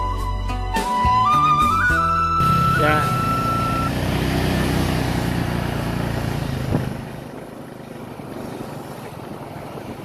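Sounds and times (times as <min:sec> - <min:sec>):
road and wind noise: 0:00.0 - 0:10.0
motorbike engine running: 0:02.4 - 0:10.0.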